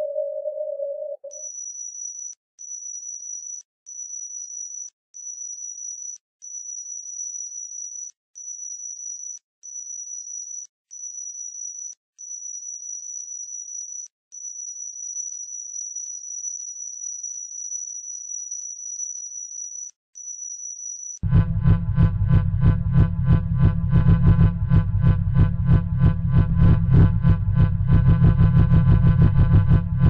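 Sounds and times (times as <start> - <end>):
high-pitched electronic tone: 0.0 - 1.5.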